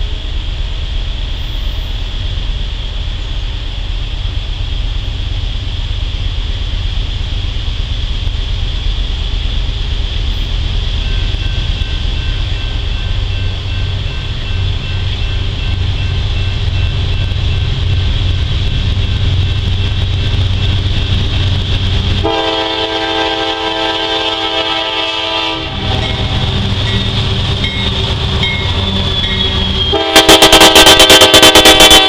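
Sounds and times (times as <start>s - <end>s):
diesel locomotive engine rumble: 0.0s - 32.0s
locomotive horn chord: 22.2s - 26.3s, 29.8s - 32.0s.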